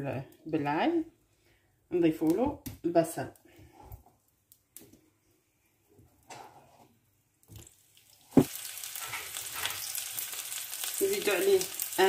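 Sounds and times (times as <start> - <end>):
oil sizzling: 7.4 - 12.0.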